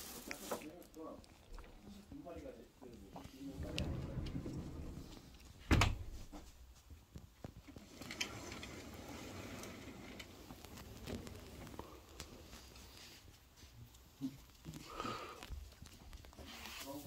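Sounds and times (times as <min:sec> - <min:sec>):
faint rustling: 0:00.0 - 0:17.0
loud thump: 0:05.6 - 0:06.5.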